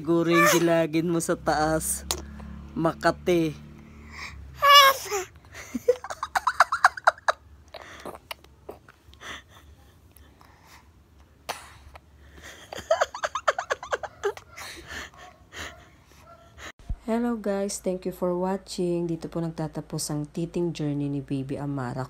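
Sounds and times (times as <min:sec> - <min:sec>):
baby babbling: 0:00.2 - 0:00.7, 0:04.1 - 0:05.3
baby squealing: 0:00.2 - 0:00.8, 0:04.6 - 0:05.3.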